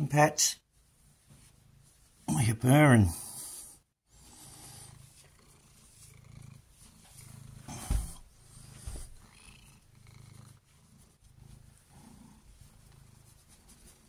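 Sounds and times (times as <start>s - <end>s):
cat purring: 3.2s - 14.0s.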